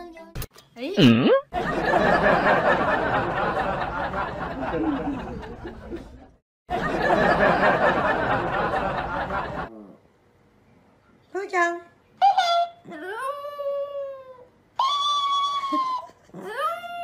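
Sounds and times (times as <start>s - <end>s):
crowd laughing: 1.6s - 9.7s.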